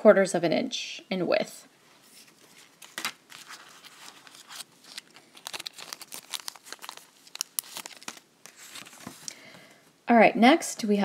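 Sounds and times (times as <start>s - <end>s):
plastic bag crinkling: 2.3s - 9.3s.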